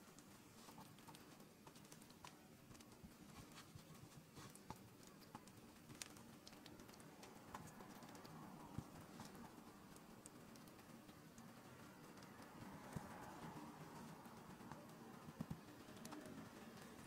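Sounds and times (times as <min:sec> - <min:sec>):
faint room hum: 0:00.0 - 0:17.0.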